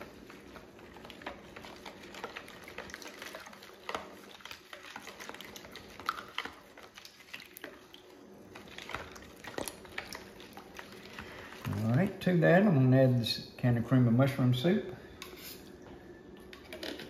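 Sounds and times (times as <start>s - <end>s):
liquid sloshing: 0.0s - 12.2s.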